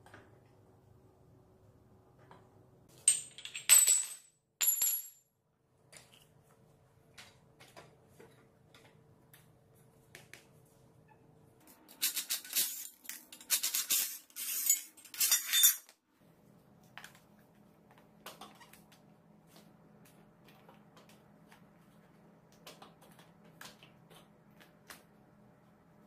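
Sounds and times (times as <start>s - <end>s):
metal parts clinking: 12.0s - 15.9s.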